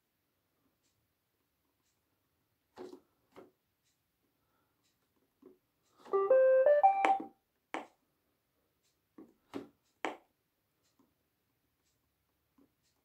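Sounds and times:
button clicks: 0:06.1 - 0:07.3
robot vacuum electronic tune: 0:06.2 - 0:07.3.

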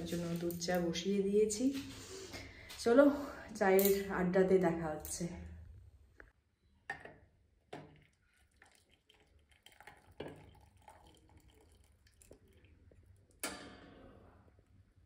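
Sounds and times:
liquid dripping and trickling: 0:07.7 - 0:13.4
splashing pour: 0:07.7 - 0:13.4.

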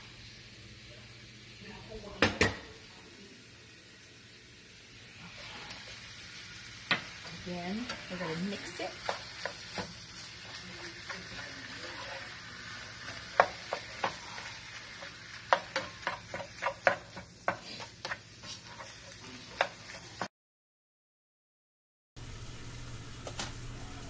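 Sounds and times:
meat sizzling in a skillet: 0:00.0 - 0:20.3, 0:22.2 - 0:24.0
spatula knocking and scraping pan: 0:06.8 - 0:20.3.

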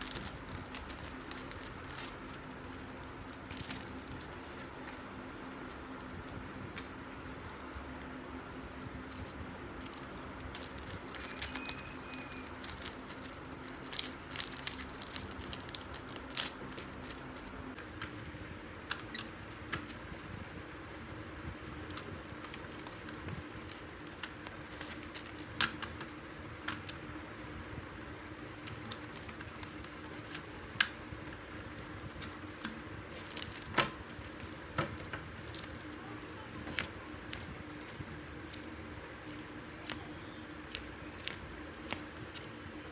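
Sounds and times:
faint steady hum: 0:00.0 - 0:42.9.

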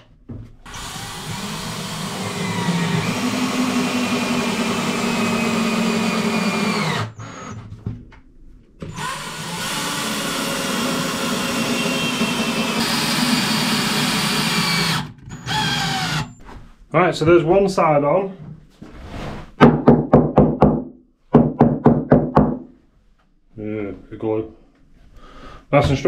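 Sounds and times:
cordless drill drilling into wood: 0:00.6 - 0:07.6, 0:08.9 - 0:16.4.

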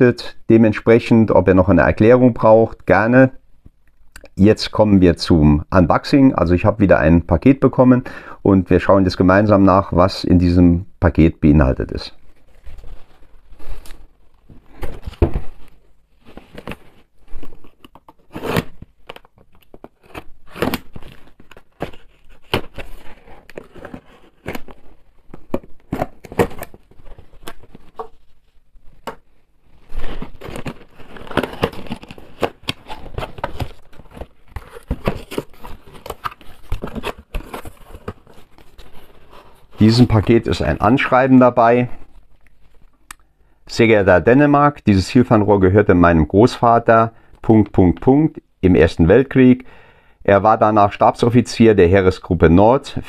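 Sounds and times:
packaging tearing and crinkling: 0:17.4 - 0:28.2, 0:29.9 - 0:39.1.

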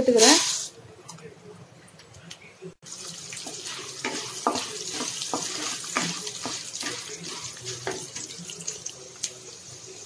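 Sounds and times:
wooden spatula stirring: 0:03.4 - 0:08.5.

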